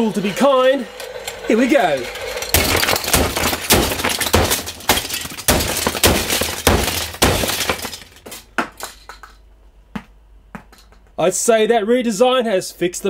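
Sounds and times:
plastic pieces clattering: 1.0s - 9.4s
hammer smashing plastic toy: 2.2s - 9.4s.

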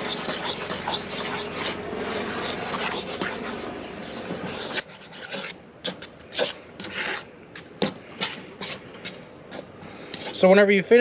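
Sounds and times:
hand squishing dough: 0.0s - 10.5s.

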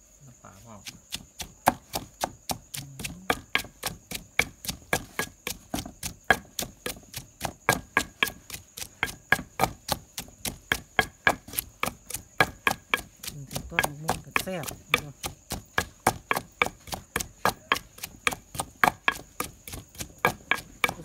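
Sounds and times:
pestle pounding in stone mortar: 0.8s - 21.0s.

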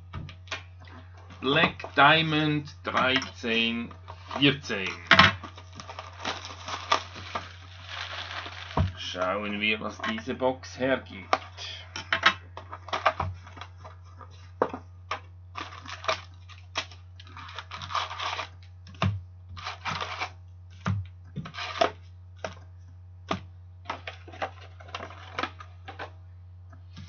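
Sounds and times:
steady low hum: 0.0s - 27.0s
card packs rustling: 0.4s - 14.9s, 15.5s - 18.6s, 23.8s - 26.2s
cardboard flaps tearing: 4.1s - 9.0s, 15.6s - 22.0s.

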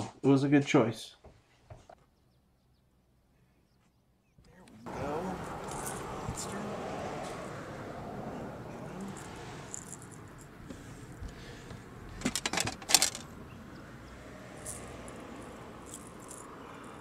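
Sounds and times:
clatter of clicks and rattles: 12.2s - 13.3s.

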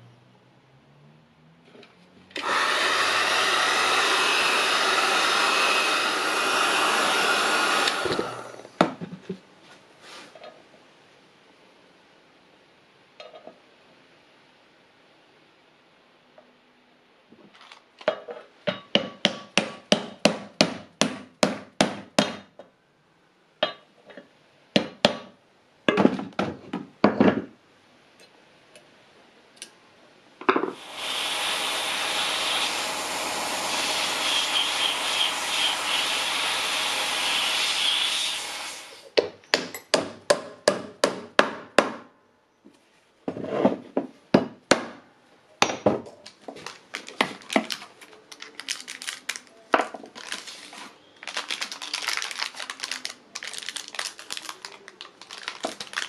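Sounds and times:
aerosol spray hissing: 30.8s - 39.1s.

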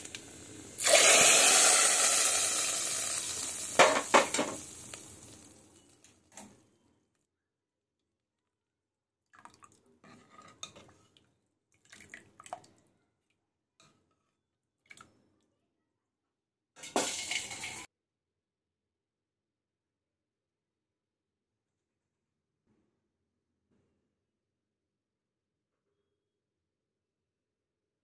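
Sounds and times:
metal clatter on pot: 3.8s - 4.6s, 16.8s - 17.9s
ladle stirring in a pot: 10.0s - 12.0s, 16.8s - 17.9s.

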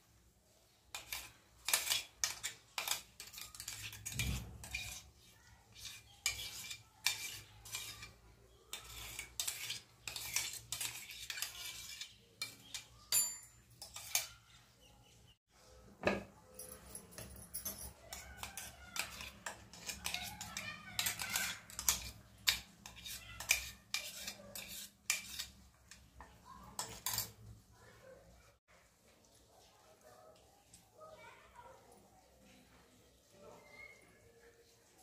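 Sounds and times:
spoon scraping metal jar: 0.9s - 14.4s, 16.5s - 27.5s.

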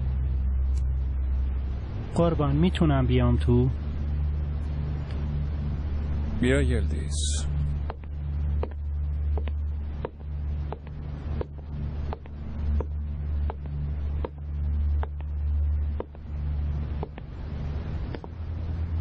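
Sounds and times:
low rumbling drone: 0.0s - 19.0s.

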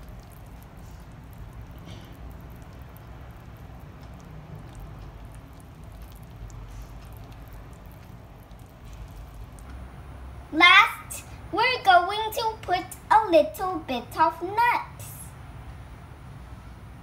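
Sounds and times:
whisk stirring batter: 0.0s - 9.6s
whisk wires ticking against bowl: 0.0s - 9.7s
low steady hum: 0.0s - 17.0s.

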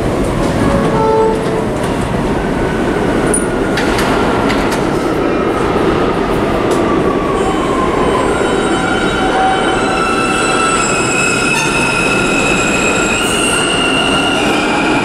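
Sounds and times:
train running equipment noise: 0.0s - 5.3s.

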